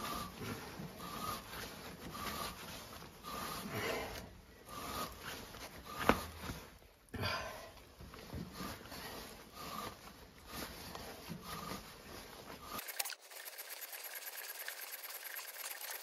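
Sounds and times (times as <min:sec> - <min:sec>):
gloves rubbing on handles: 0:00.0 - 0:07.0, 0:07.8 - 0:16.0
faint fast ticking: 0:12.8 - 0:16.0.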